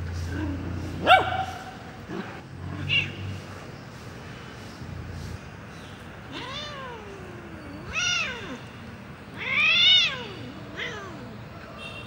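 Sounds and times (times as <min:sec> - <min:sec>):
cat meowing: 0:06.3 - 0:08.7, 0:09.3 - 0:11.4.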